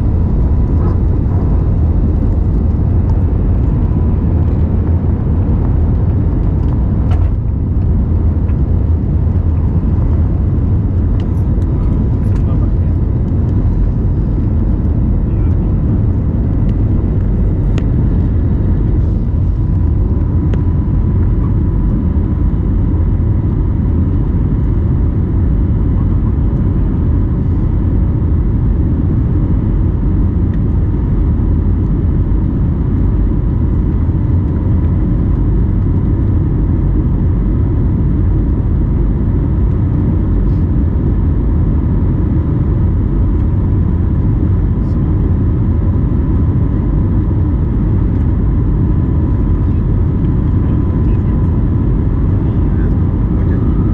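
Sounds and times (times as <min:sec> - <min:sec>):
faint steady whine: 0:00.0 - 0:53.9
jet engine rumble and rushing air: 0:00.0 - 0:53.9.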